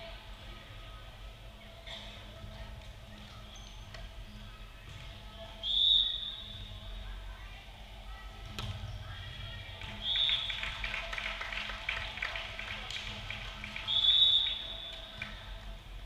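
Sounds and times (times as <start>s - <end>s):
murmur of a large gym: 0.0s - 16.0s
referee's whistle blast: 5.6s - 6.6s.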